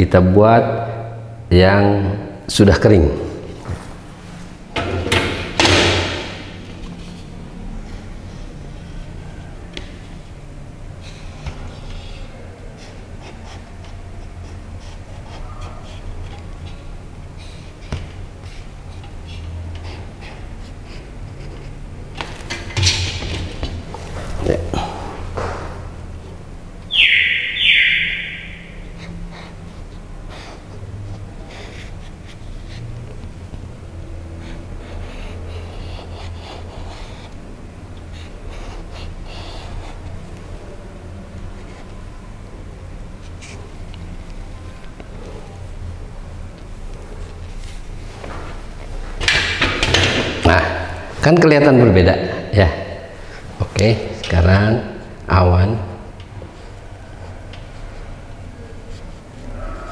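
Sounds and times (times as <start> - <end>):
marker pen scratching: 11.0 - 21.8, 28.4 - 40.6, 41.3 - 42.1, 43.2 - 45.5, 57.7 - 59.4.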